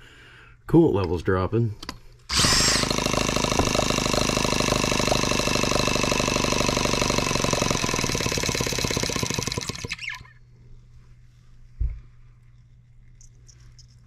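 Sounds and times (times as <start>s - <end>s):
model engine running fast: 2.3s - 10.3s
starter spinning engine: 2.3s - 10.4s.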